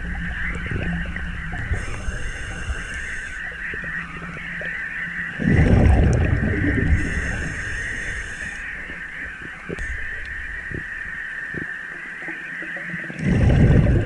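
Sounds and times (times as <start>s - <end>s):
high whine: 0.0s - 11.7s
low underwater rumble: 0.0s - 11.8s, 13.1s - 14.0s
rush of bubbles: 5.4s - 8.7s, 13.1s - 14.0s.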